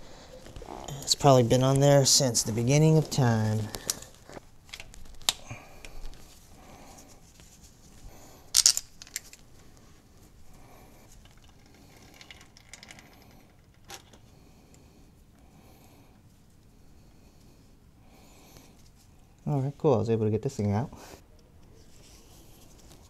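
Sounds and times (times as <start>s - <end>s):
handling noise: 0.0s - 6.4s.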